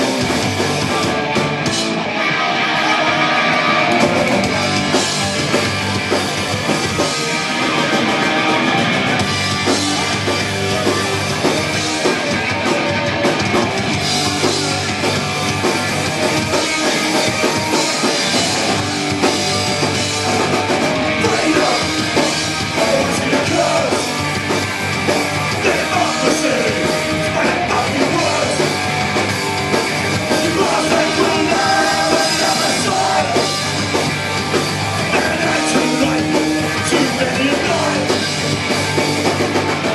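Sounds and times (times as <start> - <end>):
bass: 0.0 - 39.9
distorted electric guitars: 0.0 - 39.9
drum kit: 0.0 - 39.9
man singing into a microphone: 21.2 - 24.1, 25.6 - 28.7, 30.3 - 33.5, 35.1 - 38.2.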